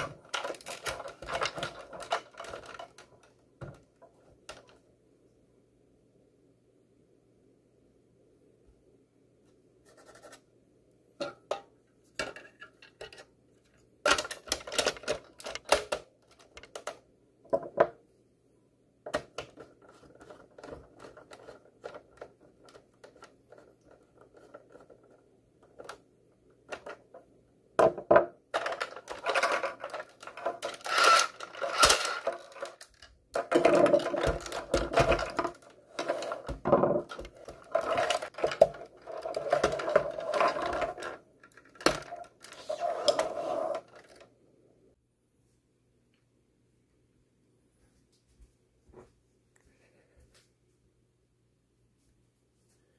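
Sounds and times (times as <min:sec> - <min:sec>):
plastic parts clicking and clattering: 0:00.0 - 0:04.8, 0:11.2 - 0:17.9, 0:19.0 - 0:26.0, 0:26.6 - 0:44.3.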